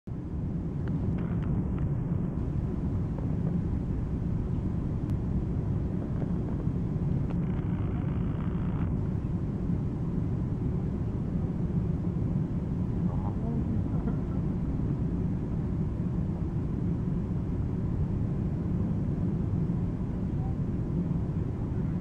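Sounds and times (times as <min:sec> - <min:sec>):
airliner cabin rumble: 0:00.1 - 0:22.0.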